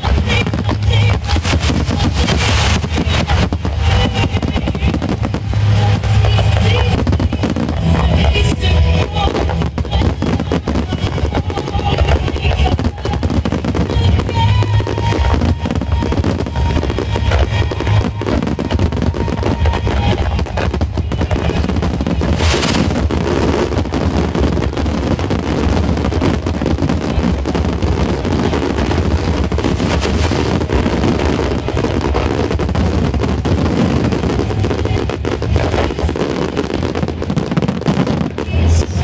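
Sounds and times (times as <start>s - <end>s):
fireworks bursting and crackling: 0.0s - 39.0s
music playing: 0.0s - 39.0s.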